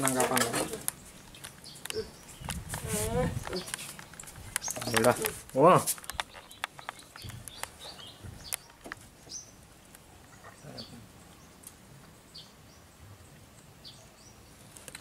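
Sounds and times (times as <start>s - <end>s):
quiet outdoor background noise: 0.0s - 15.0s
sharp clicks: 3.4s - 9.0s.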